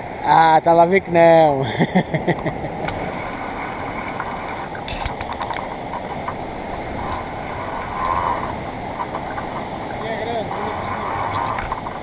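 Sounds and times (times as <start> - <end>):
sea surf washing against rocks: 0.0 - 12.0
faint clicks: 3.7 - 12.0.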